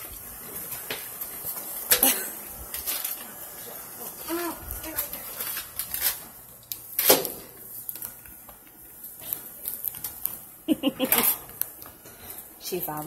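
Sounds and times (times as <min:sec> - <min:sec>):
plastic wrapping crinkling: 0:02.6 - 0:10.5.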